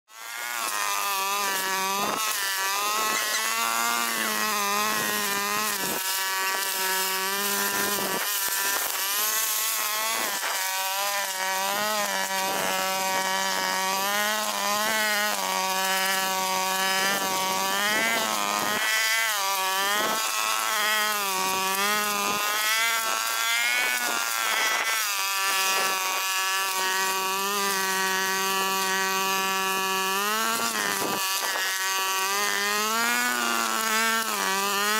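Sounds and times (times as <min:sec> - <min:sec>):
brush cutter engine running: 0:00.1 - 0:34.9.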